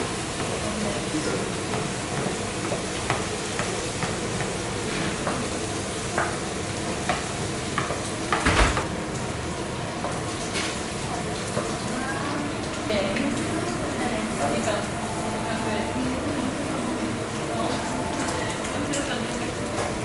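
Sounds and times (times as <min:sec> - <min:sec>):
pancakes sizzling on griddle: 0:00.0 - 0:08.4, 0:09.0 - 0:13.2
loud knock: 0:08.4 - 0:08.9.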